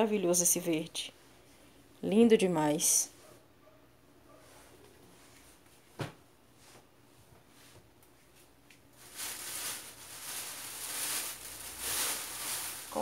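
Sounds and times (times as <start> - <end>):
fabric rustling: 9.0 - 13.0.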